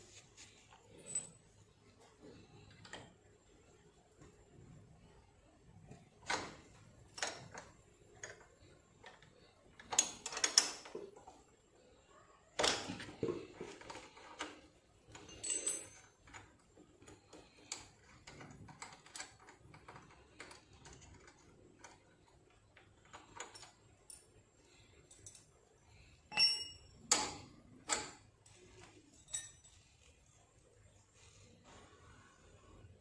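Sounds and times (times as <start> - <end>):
light metallic clicks and clinks: 0.7 - 3.1, 13.8 - 22.4, 23.0 - 30.2.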